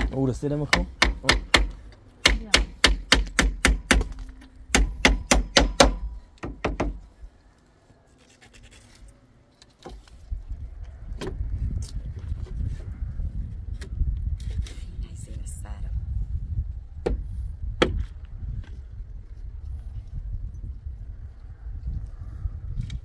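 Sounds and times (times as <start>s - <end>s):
hammer striking nails into wood: 0.0s - 7.0s.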